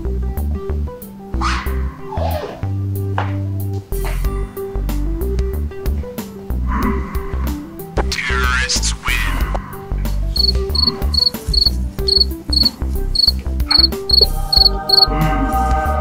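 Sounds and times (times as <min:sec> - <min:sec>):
background music with bass: 0:00.0 - 0:16.0
cricket chirp sound effect: 0:10.4 - 0:15.1.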